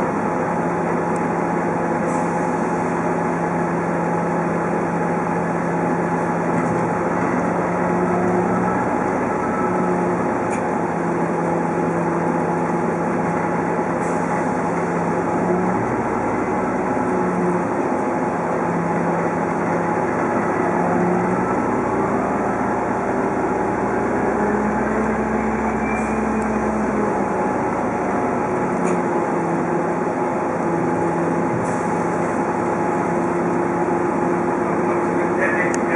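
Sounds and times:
bus drivetrain hum: 0.0s - 35.9s
thin rising whines: 19.9s - 28.8s.

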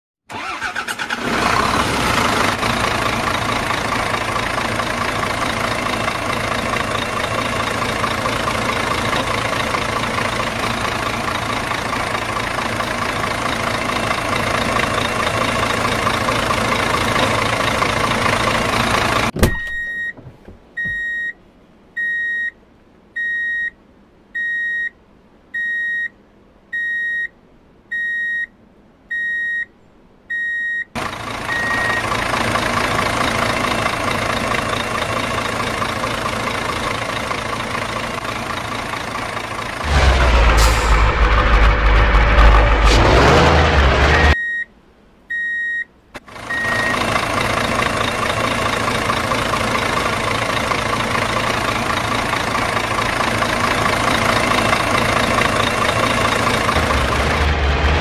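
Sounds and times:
truck engine running: 0.3s - 21.1s, 31.0s - 44.4s, 46.2s - 58.0s
reversing alarm beeping: 19.5s - 20.2s, 20.8s - 21.4s, 22.0s - 22.5s, 23.2s - 23.8s, 25.6s - 26.1s, 26.8s - 27.3s, 29.1s - 29.7s, 31.5s - 32.1s, 44.0s - 44.7s, 46.5s - 47.0s.

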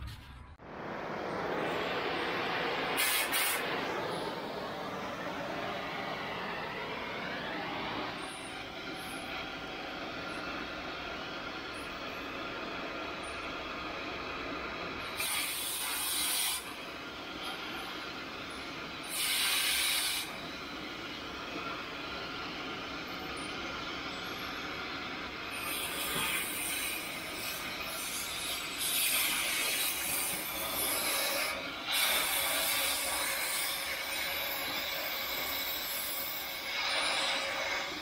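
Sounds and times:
cutting torch hissing: 0.6s - 38.0s.

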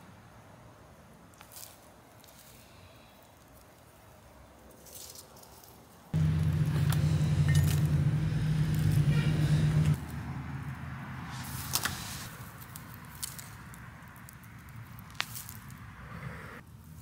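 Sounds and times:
low motor hum: 6.2s - 11.0s.

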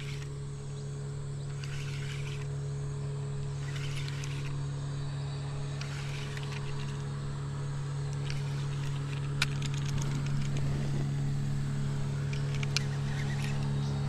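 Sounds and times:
motor humming: 0.0s - 14.0s
sharp clicks: 1.4s - 2.5s, 3.6s - 4.6s, 5.8s - 7.0s, 8.1s - 10.7s, 12.2s - 13.7s.

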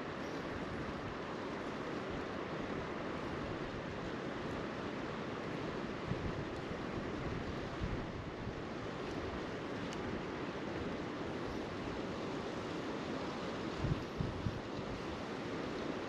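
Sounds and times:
creek water flowing: 0.0s - 16.0s
wind buffeting microphone: 6.0s - 8.6s, 13.8s - 15.2s.

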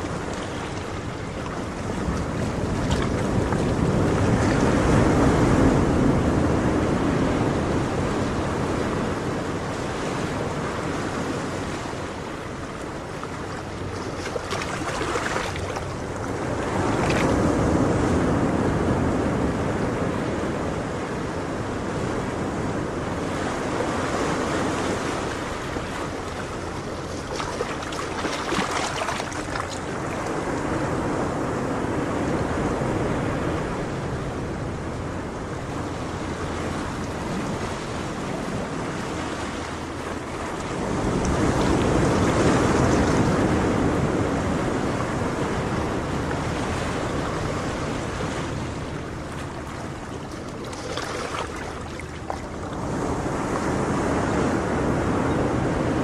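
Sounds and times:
ocean waves washing in: 0.0s - 56.0s.

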